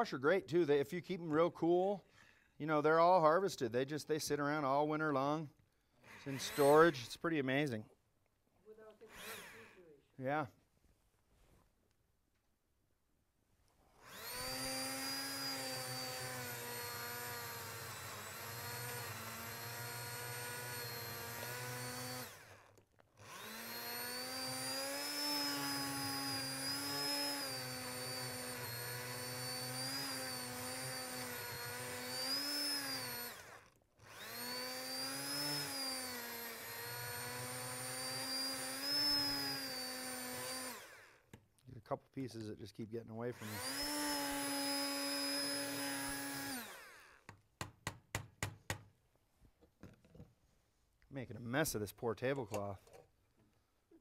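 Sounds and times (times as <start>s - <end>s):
immersion blender whining: 6.0s - 7.0s, 9.0s - 9.9s, 14.0s - 41.3s, 43.4s - 47.4s.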